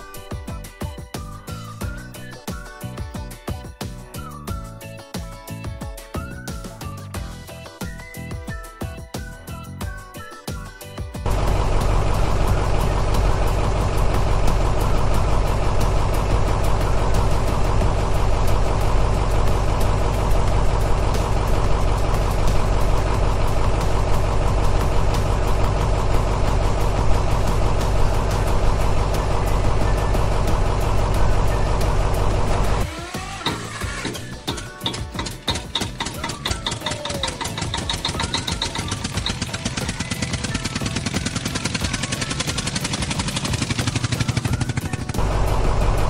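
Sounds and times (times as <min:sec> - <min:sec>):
engine idling: 0:11.2 - 0:46.0.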